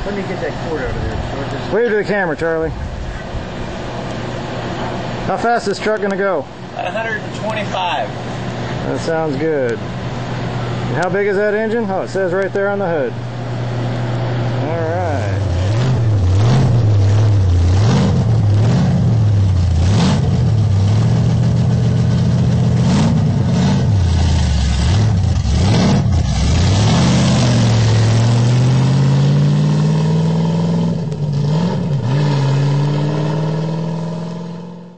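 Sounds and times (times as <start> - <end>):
engine revving: 13.5 - 34.9.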